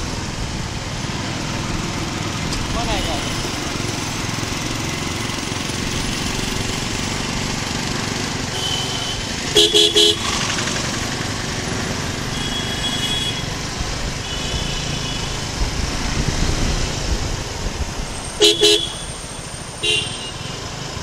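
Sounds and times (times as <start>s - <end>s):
motorcycle engine running: 0.0s - 21.0s
town traffic: 0.0s - 21.0s
vehicle horn beeping: 8.5s - 10.4s, 12.3s - 13.5s, 14.2s - 15.4s, 18.4s - 19.2s, 19.8s - 20.6s.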